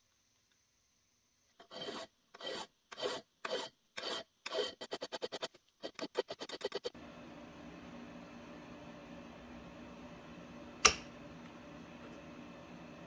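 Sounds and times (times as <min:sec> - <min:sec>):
hand file rasping on metal: 0:01.6 - 0:06.8.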